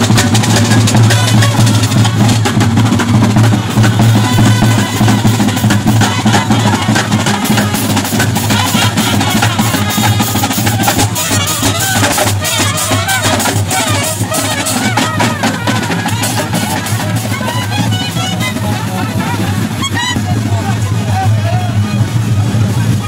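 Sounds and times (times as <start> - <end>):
brass band playing: 0.0 - 23.0
drums beating fast: 0.0 - 23.0.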